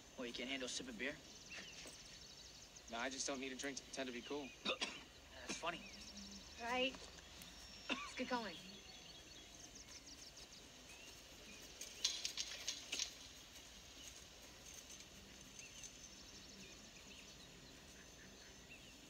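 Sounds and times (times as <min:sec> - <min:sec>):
birds chirping: 0:00.0 - 0:19.0
crackling rustles and clicks: 0:09.8 - 0:16.6.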